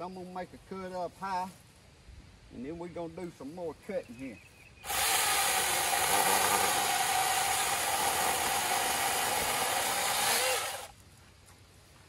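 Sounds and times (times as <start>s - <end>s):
chainsaw cutting wood: 4.8s - 10.9s.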